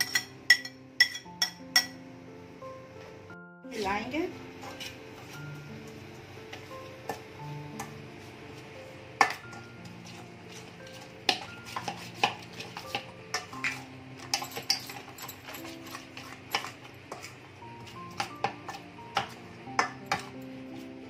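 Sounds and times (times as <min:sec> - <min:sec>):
spoon clinking on steel: 0:00.0 - 0:02.0, 0:11.3 - 0:17.3
soft background music: 0:00.0 - 0:21.0
metal spoon scraping steel bowl: 0:09.2 - 0:17.4.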